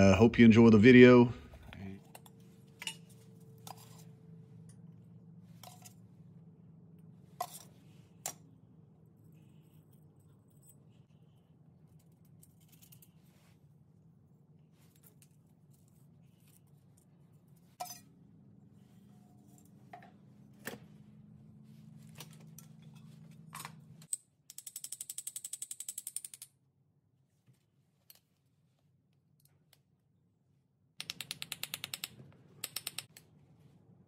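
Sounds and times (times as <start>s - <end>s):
steady low hum: 0.0s - 24.1s.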